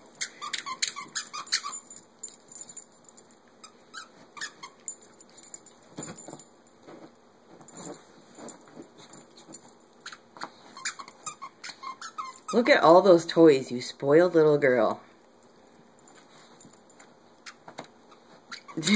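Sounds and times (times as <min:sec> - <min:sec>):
dog rummaging through toys: 0:04.9 - 0:09.8.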